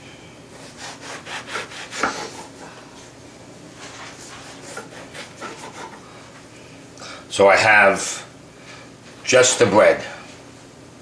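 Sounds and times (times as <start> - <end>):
knife sawing through bread crust: 0.6 - 2.7, 4.0 - 6.0.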